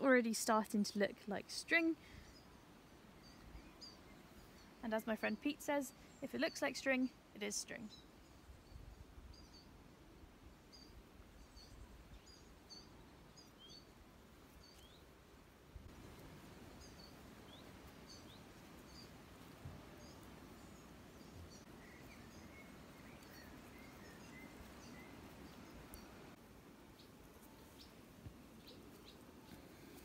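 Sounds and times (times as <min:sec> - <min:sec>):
birds chirping: 0:15.9 - 0:30.0.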